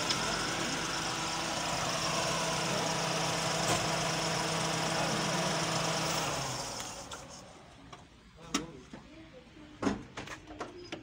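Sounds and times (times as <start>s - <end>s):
car engine idling: 0.0s - 8.2s.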